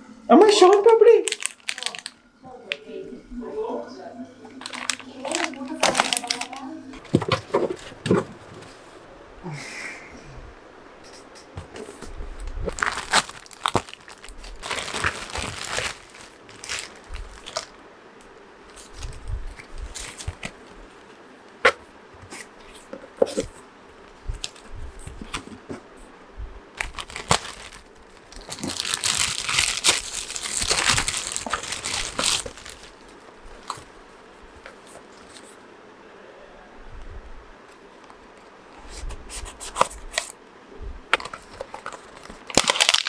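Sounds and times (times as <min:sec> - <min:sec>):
plastic mailer bag crinkling and tearing: 0:00.5 - 0:02.2, 0:04.6 - 0:07.9, 0:12.4 - 0:17.8, 0:18.7 - 0:20.7, 0:24.3 - 0:25.4, 0:26.8 - 0:34.0, 0:41.2 - 0:43.0
packaging clicks and crackles: 0:01.3 - 0:02.2, 0:04.6 - 0:07.9, 0:12.7 - 0:17.8, 0:18.7 - 0:20.6, 0:24.3 - 0:25.5, 0:26.8 - 0:33.9, 0:41.2 - 0:43.0.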